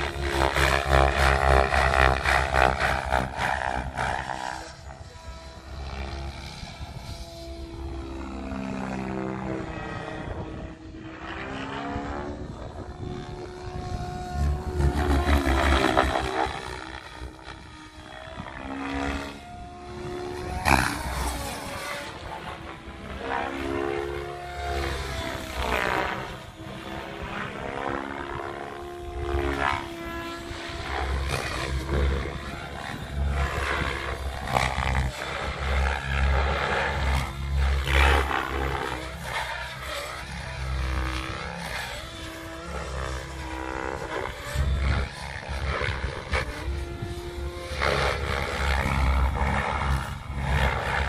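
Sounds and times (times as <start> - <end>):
electric motor whine: 0.0 - 51.0
helicopter rotor blades chopping: 0.0 - 51.0.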